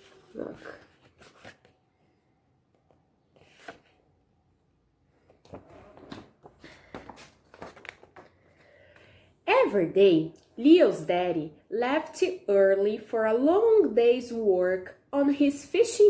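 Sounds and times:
book pages rustling: 0.0s - 4.1s, 5.2s - 9.0s.

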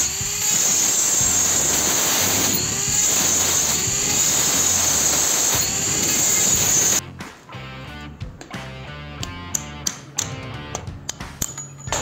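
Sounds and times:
rotary tool grinding metal: 0.0s - 7.0s
background music with bass: 0.0s - 12.0s.

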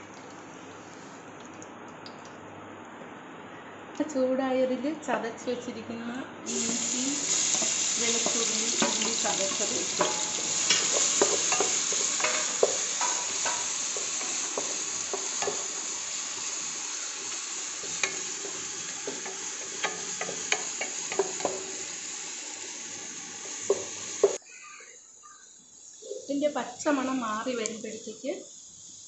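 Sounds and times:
aromatics sizzling in oil: 6.4s - 24.4s, 25.6s - 29.0s.

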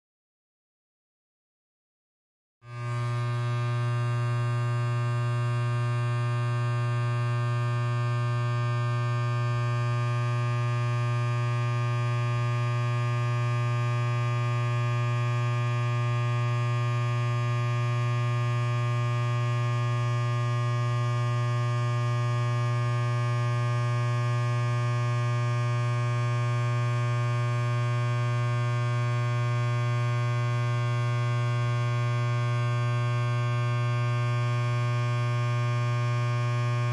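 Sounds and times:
electric hair clipper buzzing: 2.7s - 36.9s.

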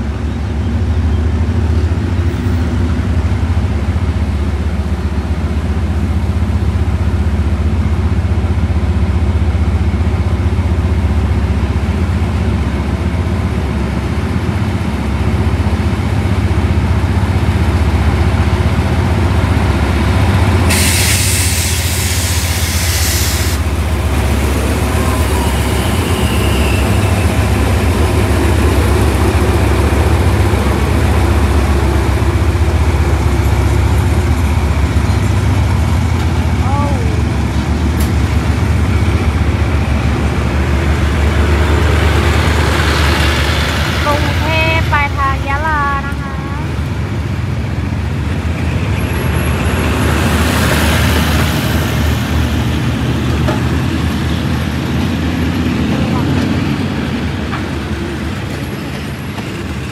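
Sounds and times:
diesel train engine humming: 0.0s - 59.9s
loud hiss of air: 20.7s - 23.8s.

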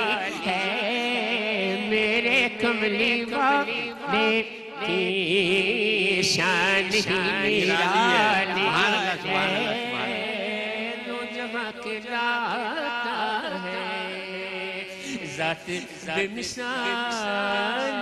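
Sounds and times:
man singing devotional song: 0.0s - 18.0s.

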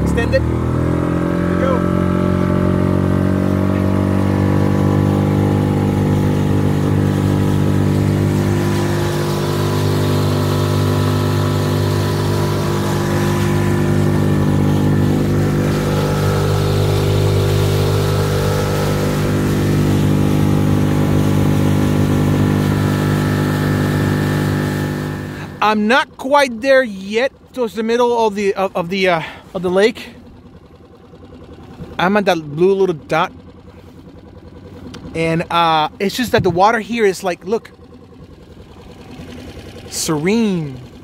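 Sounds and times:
outboard motor running: 0.0s - 41.0s
water hissing along hull: 3.2s - 25.6s.

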